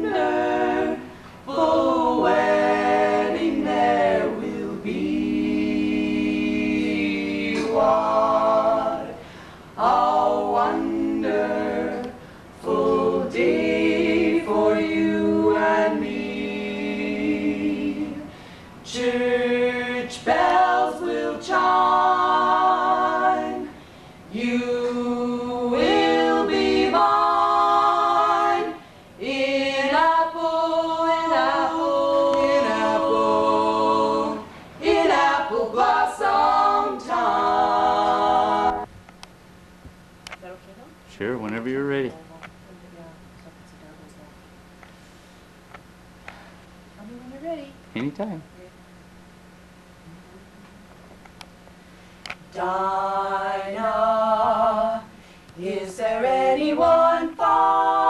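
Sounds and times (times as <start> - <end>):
women singing in harmony: 0.0 - 38.9, 52.5 - 58.0.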